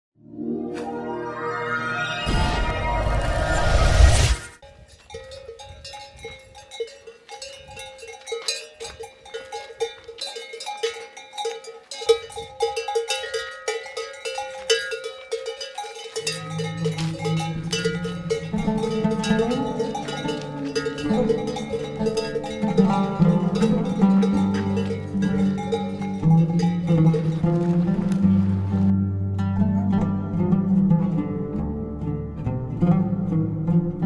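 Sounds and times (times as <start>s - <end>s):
loud whoosh: 0.6s - 4.6s
camel bells clanking: 4.6s - 28.8s
low musical drone: 16.8s - 34.0s.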